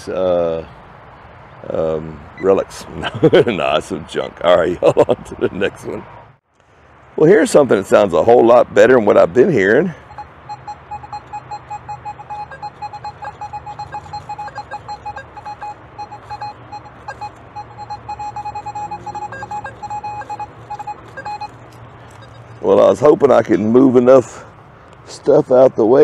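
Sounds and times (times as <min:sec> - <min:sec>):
metal detector beeping rapidly: 0:10.0 - 0:22.9.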